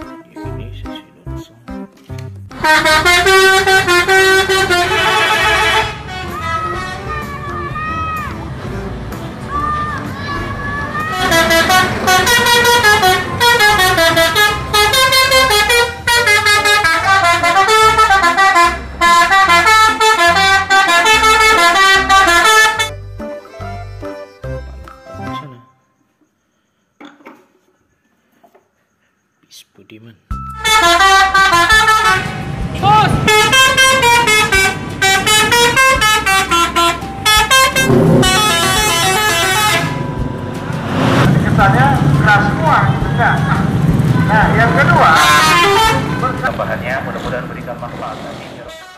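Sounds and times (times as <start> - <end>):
musical multi-tone bus air horn: 2.5 - 8.3, 11.0 - 25.8, 30.5 - 41.2, 42.0 - 46.4, 48.6 - 48.9.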